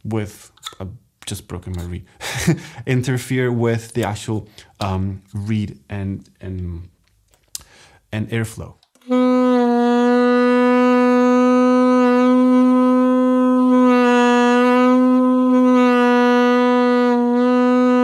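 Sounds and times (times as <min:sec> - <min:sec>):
saxophone long held note: 0:09.0 - 0:18.0.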